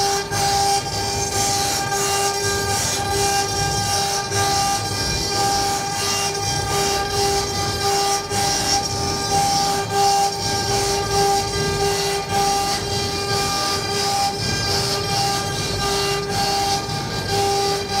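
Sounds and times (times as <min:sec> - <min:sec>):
cnc router whine: 0:00.0 - 0:18.0.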